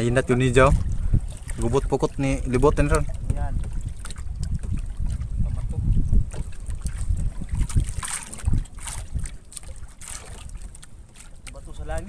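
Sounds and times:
gusty wind on microphone: 0:00.0 - 0:10.8.

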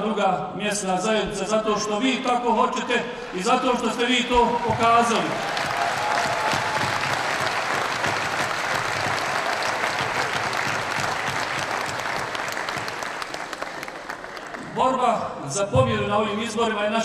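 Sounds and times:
audience clapping: 0:03.9 - 0:14.8.

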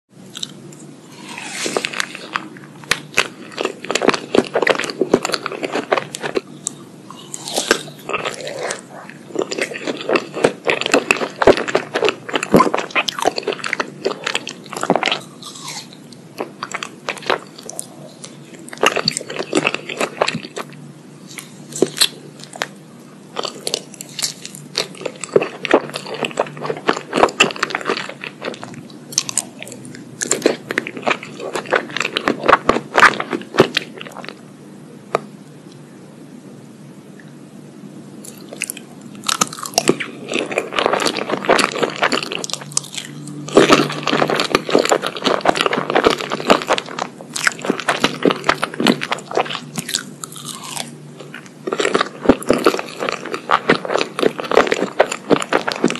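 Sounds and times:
crunchy chewing: 0:00.3 - 0:34.4, 0:38.2 - 0:55.9.

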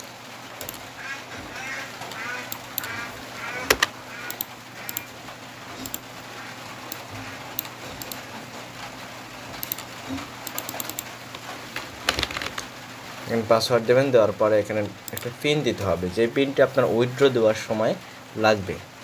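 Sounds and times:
computer mouse clicks: 0:00.0 - 0:00.8, 0:03.6 - 0:05.1, 0:05.8 - 0:06.1, 0:06.9 - 0:08.3, 0:09.6 - 0:11.1, 0:15.1 - 0:15.3
low electrical hum: 0:00.0 - 0:19.0.

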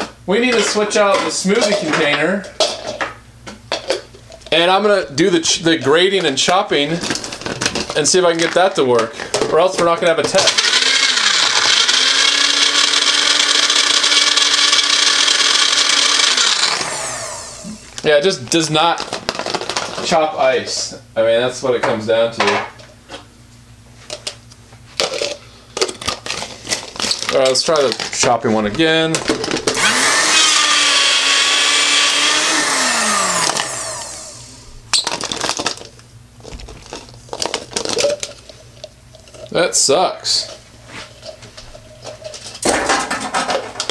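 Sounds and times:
blender motor running: 0:10.4 - 0:18.0, 0:29.7 - 0:35.6
ice rattling and grinding: 0:25.0 - 0:28.3, 0:29.7 - 0:39.6
plastic cup knocking and clattering: 0:42.1 - 0:43.9.

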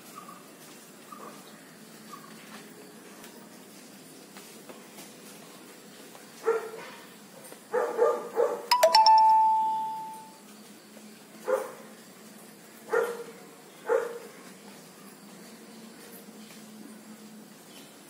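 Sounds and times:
dog barking: 0:06.4 - 0:07.0, 0:07.7 - 0:08.7, 0:11.5 - 0:11.8, 0:12.9 - 0:14.3
two-note chime: 0:08.7 - 0:10.4.

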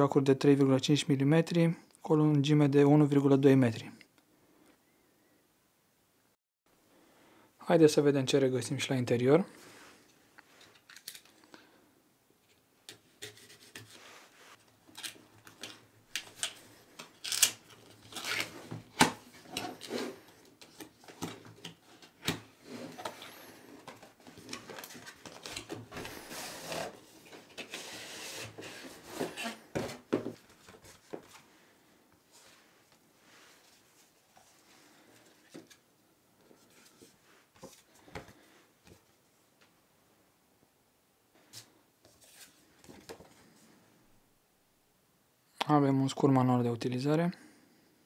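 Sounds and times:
cardboard sliding and rubbing: 0:18.3 - 0:31.5.

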